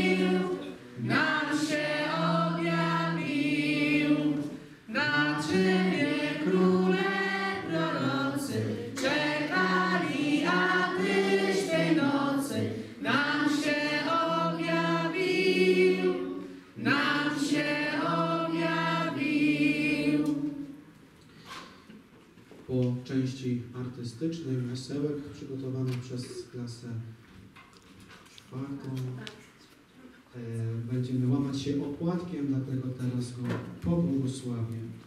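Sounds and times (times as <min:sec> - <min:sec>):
choir singing: 0:00.0 - 0:20.8.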